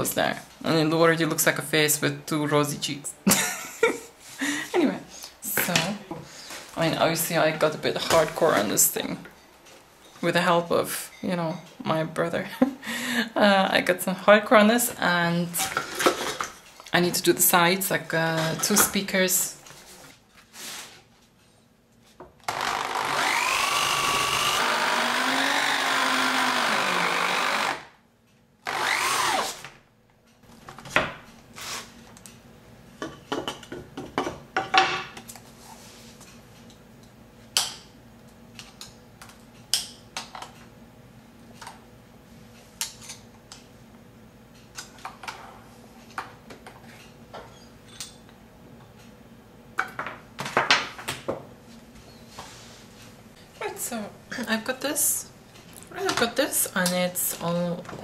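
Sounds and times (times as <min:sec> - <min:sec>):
drill cutting into wood: 0:22.5 - 0:27.9, 0:28.6 - 0:29.7.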